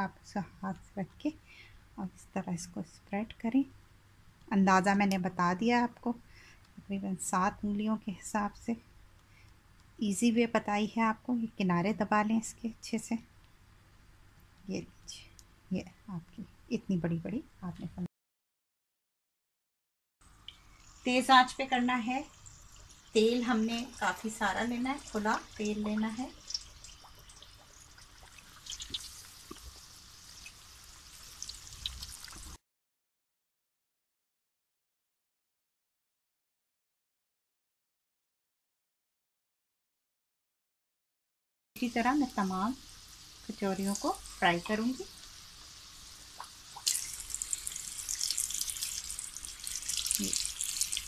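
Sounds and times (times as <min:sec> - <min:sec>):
food deep-frying in hot oil: 0:20.3 - 0:32.6, 0:41.8 - 0:51.0
oil crackles and pops: 0:22.5 - 0:32.6, 0:43.5 - 0:51.0.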